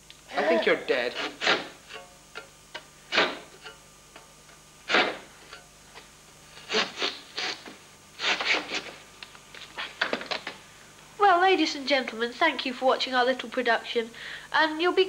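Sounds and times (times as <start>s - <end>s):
knife scraping onion on metal: 1.1s - 2.0s, 3.1s - 3.8s, 4.9s - 5.6s, 6.5s - 8.9s.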